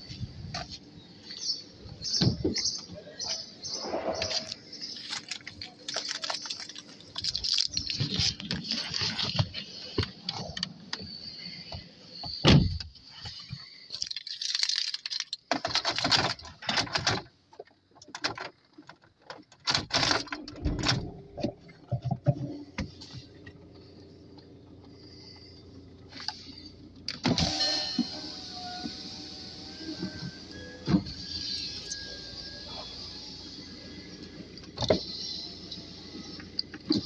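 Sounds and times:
car engine humming: 0.0s - 13.9s, 20.3s - 37.0s
electric window motor whirring: 27.2s - 37.0s.

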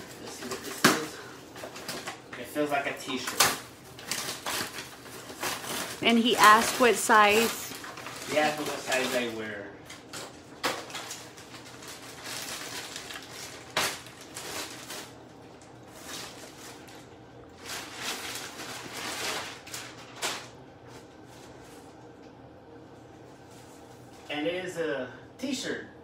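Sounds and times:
plastic bags rustling and crinkling: 0.0s - 21.9s.

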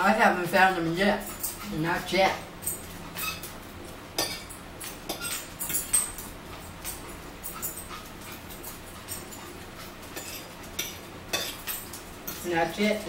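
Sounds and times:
dog whining: 3.0s - 3.5s.

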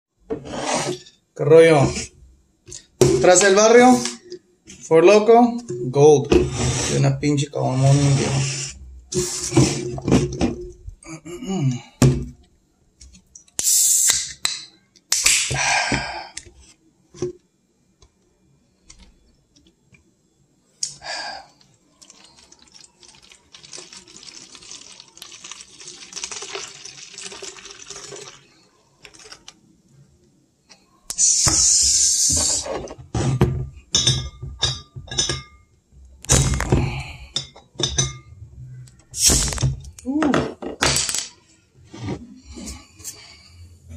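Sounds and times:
can hissing: 13.6s - 14.4s, 31.1s - 32.6s
drink pouring and fizzing: 21.6s - 29.5s.

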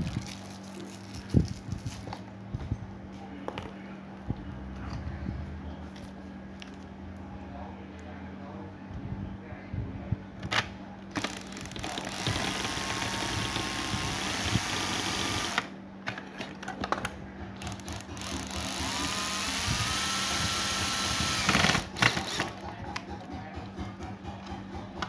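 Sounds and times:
cordless drill motor whine: 11.2s - 15.7s, 17.9s - 22.4s.

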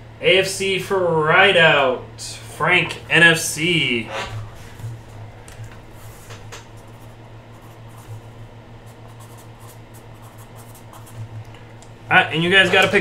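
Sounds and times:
steady low hum: 0.0s - 13.0s
marker pen scratching on paper: 6.8s - 11.4s.

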